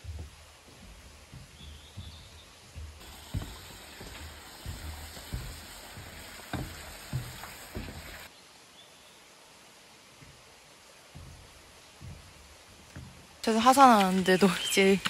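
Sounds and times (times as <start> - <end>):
soft thumps: 0.0 - 8.3, 11.1 - 13.4
forest ambience hiss: 0.0 - 15.0.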